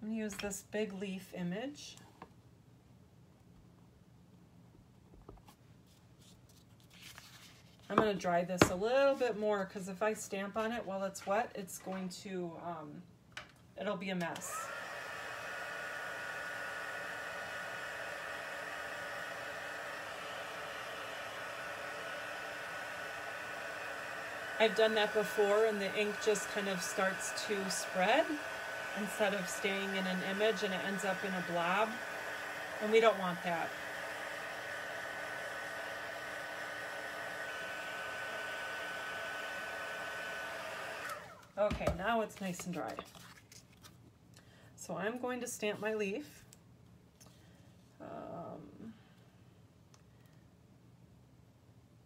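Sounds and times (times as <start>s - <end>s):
heat tool blowing hot air: 14.5s - 41.4s.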